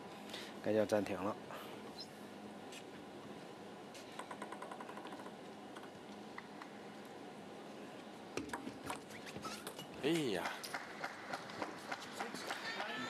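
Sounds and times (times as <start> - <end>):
table tennis ball bouncing: 4.2 - 5.9.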